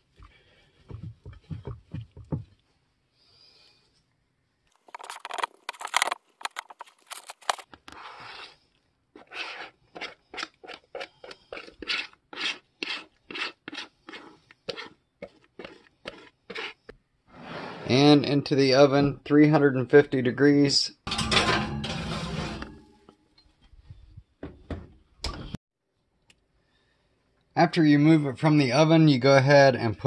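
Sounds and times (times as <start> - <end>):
spatula scraping batter from bowl: 9.2 - 16.8.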